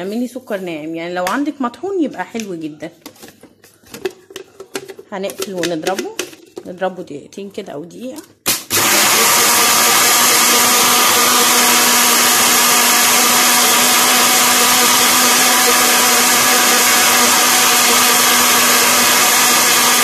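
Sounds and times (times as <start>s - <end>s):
blender running: 8.5s - 20.0s.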